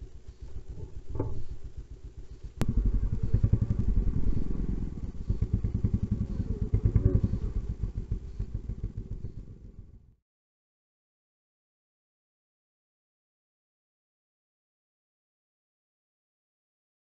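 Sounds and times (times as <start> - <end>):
dirt bike engine running: 0.0 - 10.2.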